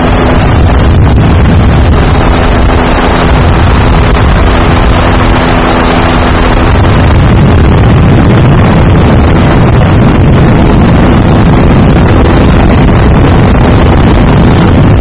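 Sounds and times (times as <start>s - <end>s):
loud engine drone: 0.0s - 15.0s
wind on microphone: 0.0s - 15.0s.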